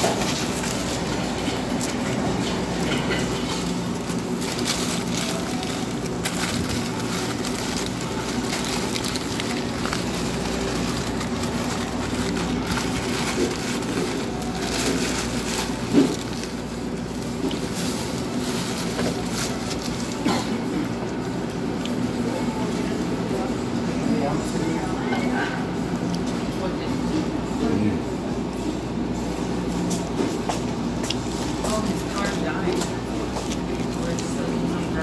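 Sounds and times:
paper wrapper crinkling: 0.0 - 20.2
steady background hum: 0.0 - 35.0.

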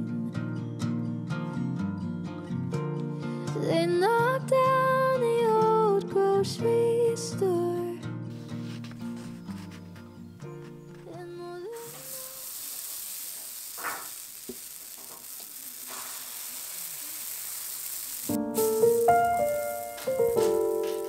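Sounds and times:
soft scrapes: 8.3 - 10.9
batter sizzling in a pan: 11.8 - 21.0
background music: 18.4 - 21.0.

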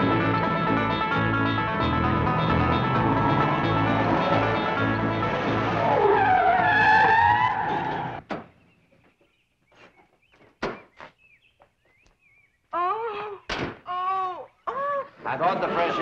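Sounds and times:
car engine running: 0.0 - 8.2
tire squeal: 2.7 - 8.2.

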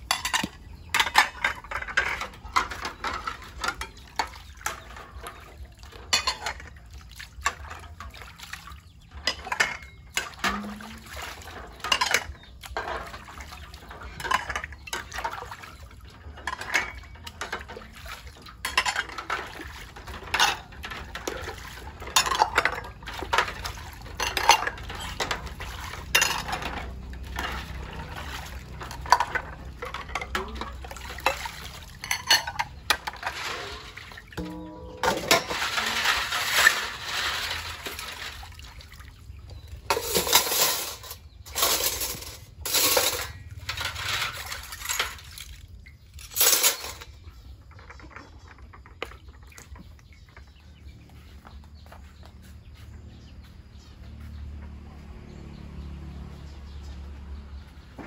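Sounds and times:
dishes and utensils clinking: 0.0 - 6.8, 9.1 - 38.6, 39.6 - 45.3, 46.2 - 49.1
water splashing: 10.1 - 40.3.

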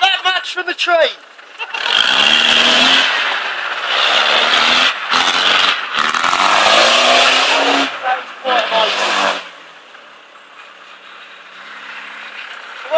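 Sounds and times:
car engine revving hard: 1.7 - 9.6.

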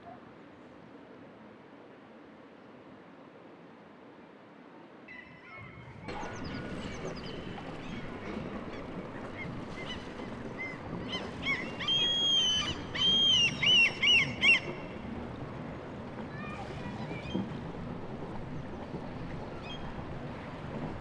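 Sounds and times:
gulls calling: 5.1 - 21.0.

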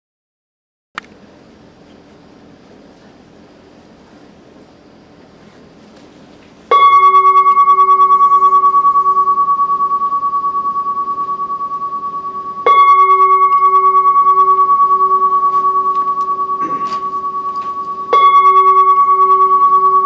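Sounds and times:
singing bowl ringing: 6.7 - 20.0.

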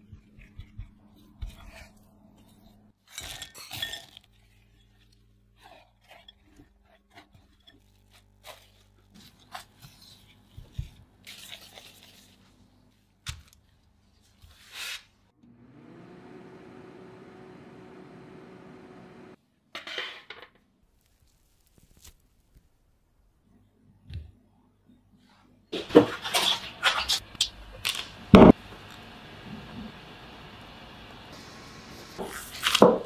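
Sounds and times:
dough squishing: 0.0 - 15.0, 20.9 - 22.8
plastic glove crackling: 6.7 - 15.2, 20.9 - 23.0, 32.2 - 33.0
oven humming: 15.4 - 19.4, 25.8 - 32.2.

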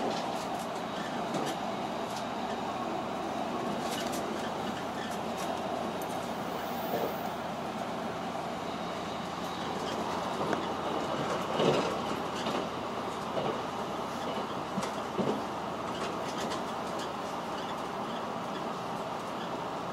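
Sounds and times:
train wheels rumbling on rails: 0.0 - 19.9
rail joint clacks: 9.5 - 19.6.

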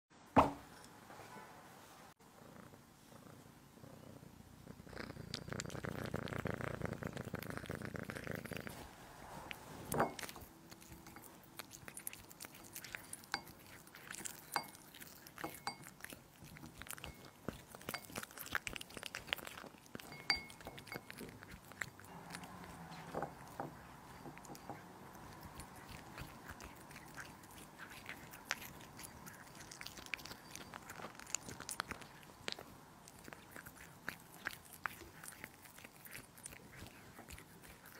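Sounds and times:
cat purring: 2.2 - 37.9
cat eating wet bites: 9.5 - 37.9.

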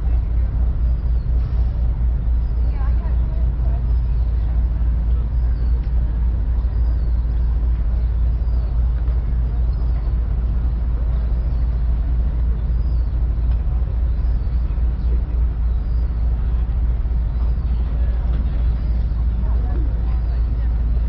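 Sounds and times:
ferry engines droning: 0.0 - 21.0.

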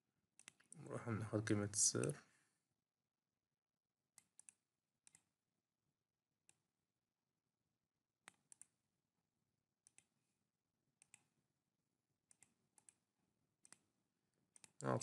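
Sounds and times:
mouse and keyboard clicks: 0.4 - 0.8, 4.2 - 5.3, 8.2 - 8.8, 9.8 - 10.1, 11.0 - 11.3, 12.3 - 13.0, 13.6 - 13.9, 14.5 - 14.9.

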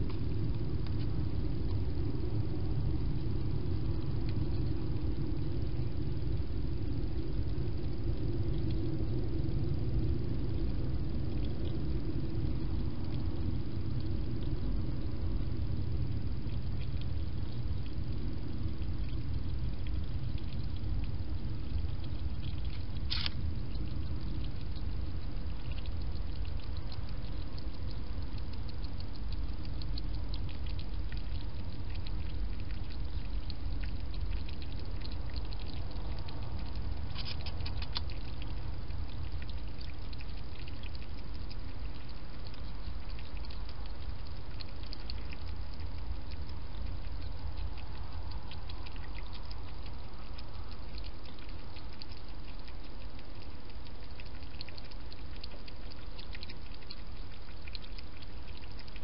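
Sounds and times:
low background rumble: 0.0 - 59.0
hedgehog mouth clicks and smacks: 23.0 - 23.4, 35.8 - 38.5.

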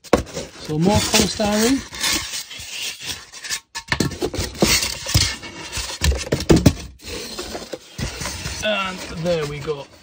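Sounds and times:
polystyrene foam scraping cardboard: 0.0 - 3.7, 6.9 - 10.0.

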